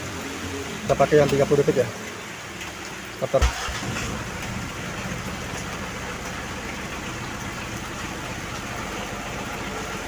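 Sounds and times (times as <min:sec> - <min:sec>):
diesel engine idling: 0:03.5 - 0:10.0.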